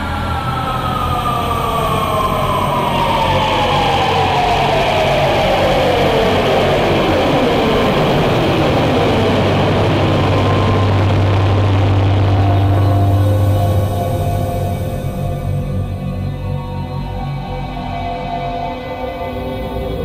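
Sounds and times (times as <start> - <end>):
descending drone tone: 0.0 - 20.0
steady low hum: 5.2 - 20.0.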